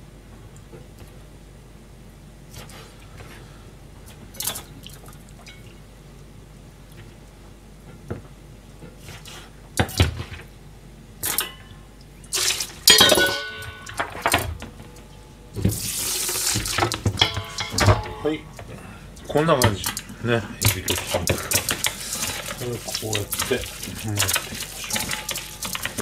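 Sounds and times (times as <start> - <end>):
metal kitchenware clattering: 12.7 - 20.0, 20.6 - 26.0
loud knocks: 16.6 - 18.4.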